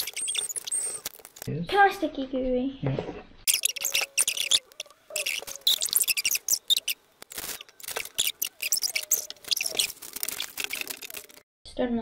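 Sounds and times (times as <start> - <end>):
faint squeaks: 3.5 - 11.4.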